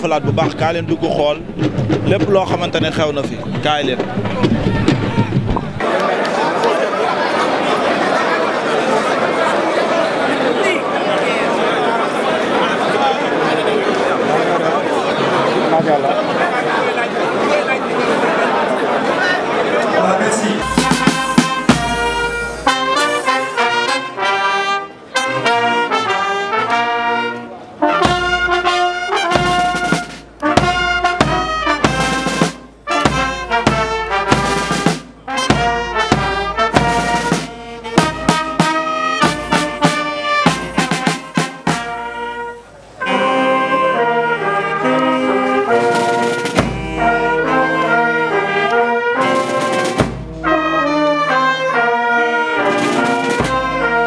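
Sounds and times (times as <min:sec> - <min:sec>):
bass and snare drum strokes: 0:00.0 - 0:05.8, 0:20.6 - 0:23.8, 0:28.0 - 0:42.2, 0:45.8 - 0:47.5, 0:49.2 - 0:50.7, 0:52.8 - 0:54.0
military brass band playing: 0:00.0 - 0:06.0, 0:20.6 - 0:54.0.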